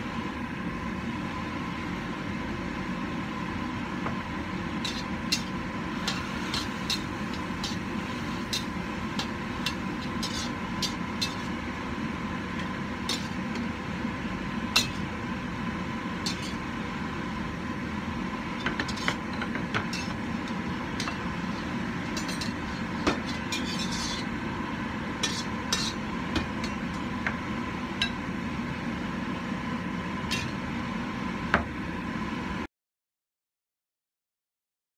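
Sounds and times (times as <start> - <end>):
metal spatula scraping a wok: 4.8 - 11.6, 13.1 - 13.4, 16.2 - 16.7, 18.8 - 24.4, 25.2 - 27.1, 30.3 - 30.6.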